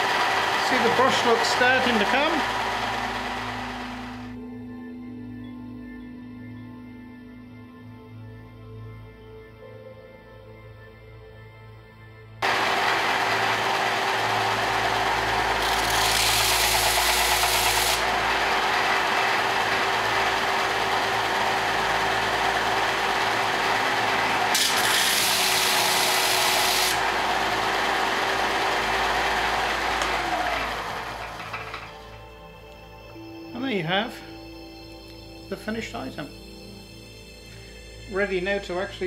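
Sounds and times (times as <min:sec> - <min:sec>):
metal grinding on sanding belt: 0:00.0 - 0:04.3, 0:12.4 - 0:31.7
sander motor hum: 0:00.0 - 0:04.4, 0:12.4 - 0:32.8.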